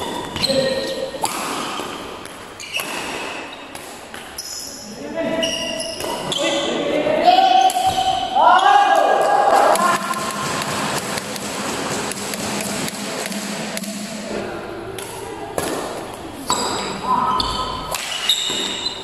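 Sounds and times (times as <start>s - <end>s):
sneakers squeaking on floor: 0.0s - 8.8s, 15.7s - 19.0s
racket striking shuttlecock: 1.2s - 4.3s, 9.6s - 14.4s, 17.8s - 18.8s.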